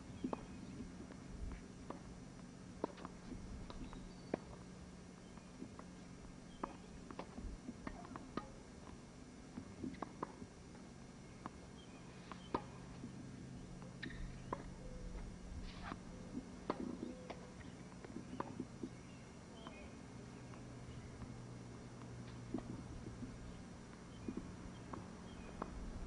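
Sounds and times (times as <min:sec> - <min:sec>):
steady low hum: 0:00.0 - 0:26.0
tennis balls struck by rackets: 0:02.8 - 0:04.7, 0:06.5 - 0:08.7, 0:11.4 - 0:13.1, 0:13.8 - 0:14.8, 0:15.8 - 0:19.0.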